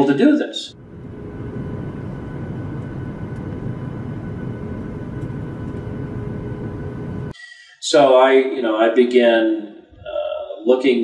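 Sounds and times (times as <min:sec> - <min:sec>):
faint even hum of tones: 0:00.7 - 0:07.3
spacecraft engine low rumble: 0:00.7 - 0:07.3.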